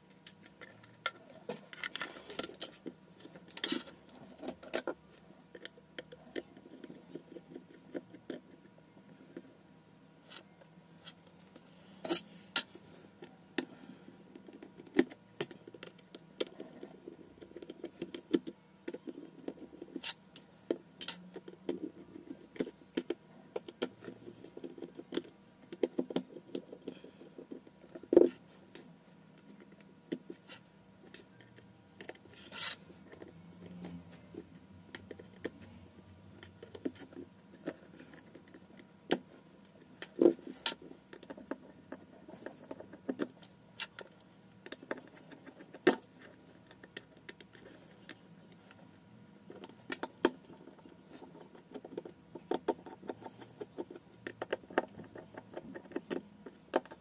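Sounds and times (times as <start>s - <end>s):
small tools clicking and scraping: 21.0s - 21.8s, 29.4s - 35.8s.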